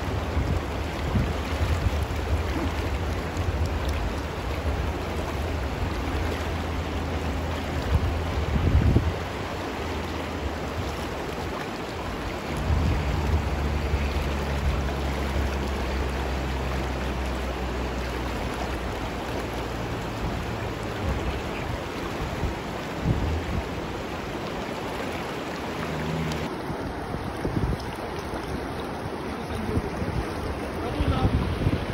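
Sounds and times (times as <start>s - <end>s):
river water rushing over rocks: 0.0s - 31.9s
low rumble: 12.5s - 21.5s.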